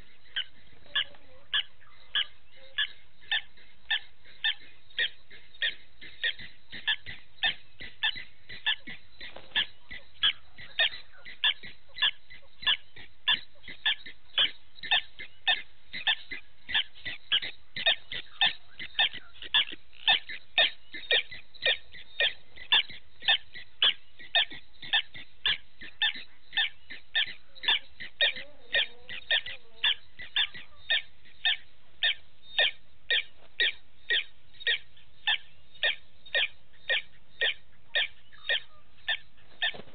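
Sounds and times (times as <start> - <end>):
animal chirping: 0.0 - 39.9.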